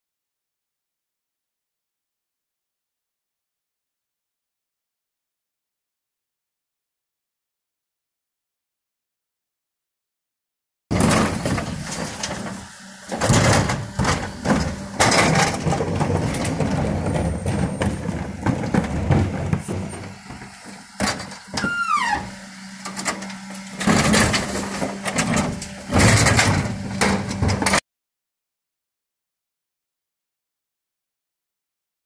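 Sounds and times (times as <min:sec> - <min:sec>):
refuse truck engine and hydraulics hum: 0:10.9 - 0:27.8
wheelie bins clattering and banging: 0:10.9 - 0:27.8
falling squeal: 0:21.6 - 0:22.4.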